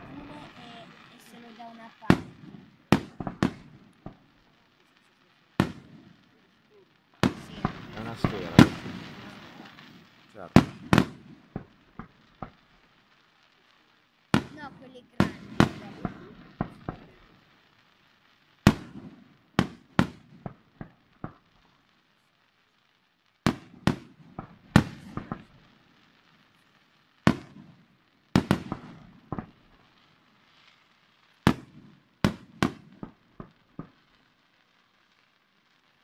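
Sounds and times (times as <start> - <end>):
fireworks bursting with echo: 0.0 - 36.0.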